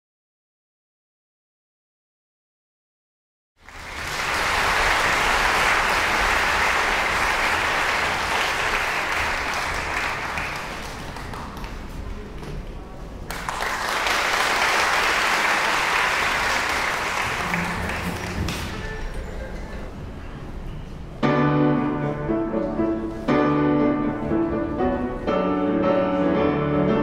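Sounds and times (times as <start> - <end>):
audience applauding: 3.6 - 12.4, 13.2 - 19.2.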